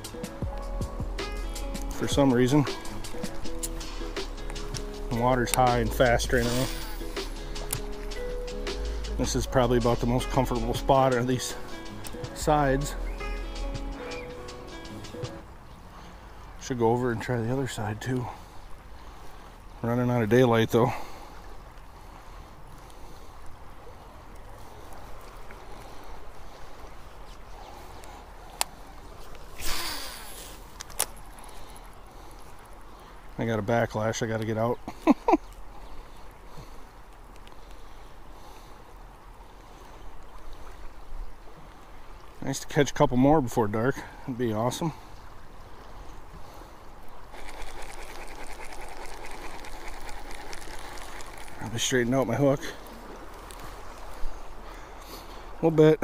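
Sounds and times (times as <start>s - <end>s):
fast river current: 0.0s - 56.0s
fishing reel clicking: 47.3s - 51.6s.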